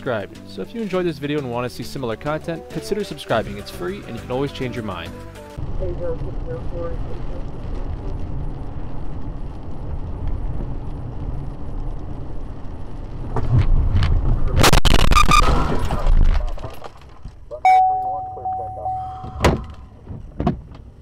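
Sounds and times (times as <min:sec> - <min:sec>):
car cabin driving rumble: 0:05.6 - 0:21.0
car crash with crunching: 0:13.3 - 0:17.5.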